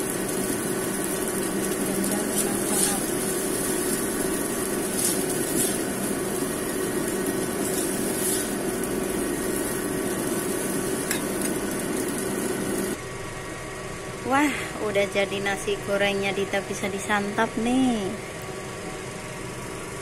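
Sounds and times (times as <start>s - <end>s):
metal spatula scraping wok: 2.2s - 6.2s, 7.5s - 8.8s.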